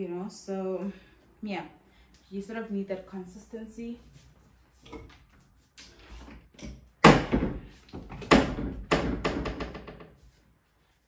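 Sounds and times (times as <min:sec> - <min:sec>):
wardrobe doors knocking: 0:07.0 - 0:10.2.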